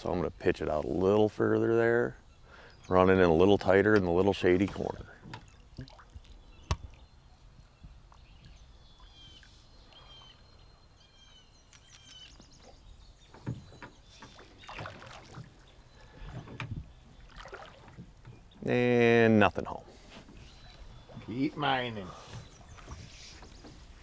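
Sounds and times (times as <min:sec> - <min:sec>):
songbird chirping: 0:00.0 - 0:24.0
water splashing: 0:04.4 - 0:07.0, 0:12.0 - 0:18.3.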